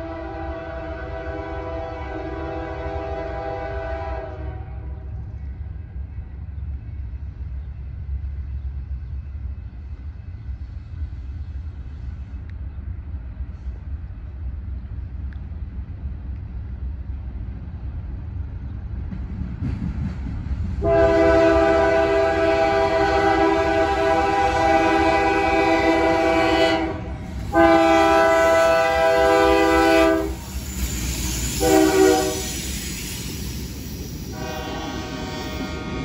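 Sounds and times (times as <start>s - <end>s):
distant train horn: 0.0s - 5.2s, 20.8s - 32.7s, 34.3s - 36.0s
train rumble: 0.0s - 36.0s.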